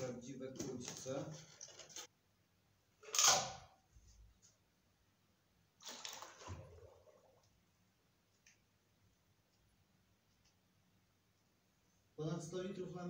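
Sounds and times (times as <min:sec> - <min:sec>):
water sloshing in a plastic bucket: 0:05.8 - 0:07.5.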